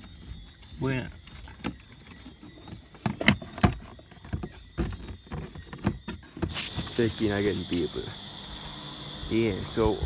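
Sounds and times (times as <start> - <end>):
knocks and clicks under dashboard: 1.2 - 7.1.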